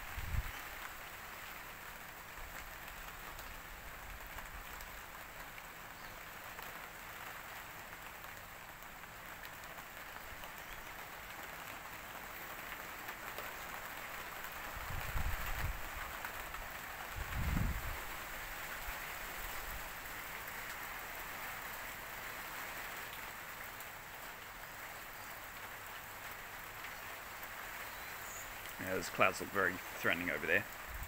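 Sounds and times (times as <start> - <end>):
wind buffeting microphone: 0.0 - 0.6, 14.8 - 15.9, 17.2 - 18.1
steady rain falling: 0.0 - 31.0.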